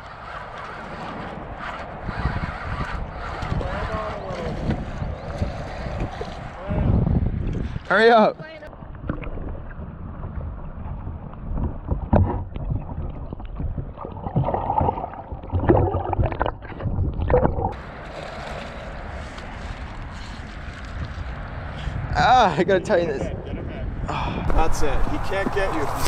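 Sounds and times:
muffled underwater sloshing: 8.7 - 18.0
lapping water: 12.5 - 17.8
wind hiss on microphone: 23.6 - 26.0.

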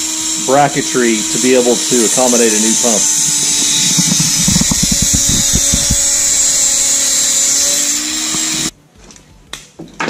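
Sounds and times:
rotary tool grinding metal: 1.8 - 8.0
bit rattling on metal: 3.7 - 6.4.

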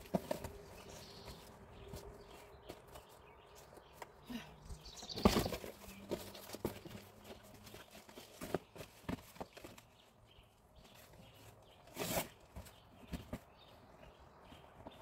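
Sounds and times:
loud cardboard scrape: 11.9 - 12.6.

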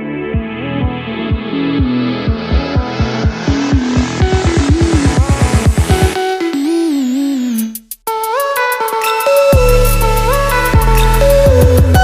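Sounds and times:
held synth line: 0.0 - 12.0
heavy kick drum: 0.3 - 6.2, 9.6 - 12.0.

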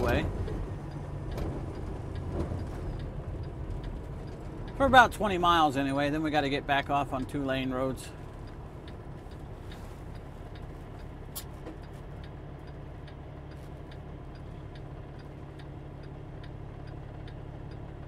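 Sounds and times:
diesel truck engine running: 0.0 - 18.0
turn signal clicking: 0.0 - 18.0.

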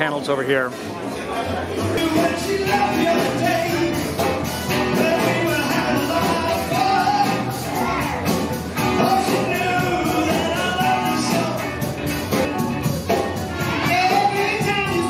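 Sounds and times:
drums: 1.6 - 15.0
electric guitar: 1.9 - 15.0
man singing: 2.0 - 12.4, 13.5 - 15.0.

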